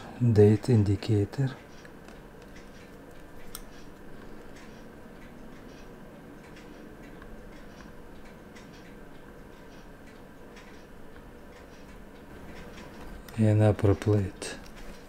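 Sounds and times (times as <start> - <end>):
steady low hum: 0.0 - 15.0
tweezers clicking on watch parts: 1.6 - 12.9.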